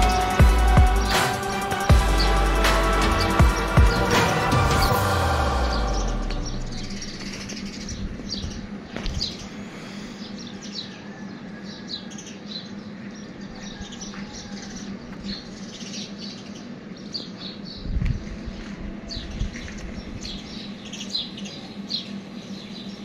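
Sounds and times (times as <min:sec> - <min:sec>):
small birds chirping: 0:05.7 - 0:23.0.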